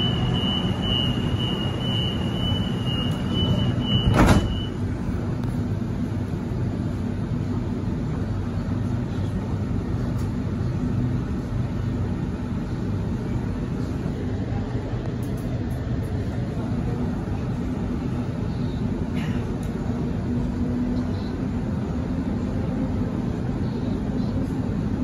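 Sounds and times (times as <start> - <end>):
high-pitched door warning tone: 0.0 - 4.8
train doors shutting with a thud: 0.0 - 4.9
low hum of train: 0.0 - 25.0.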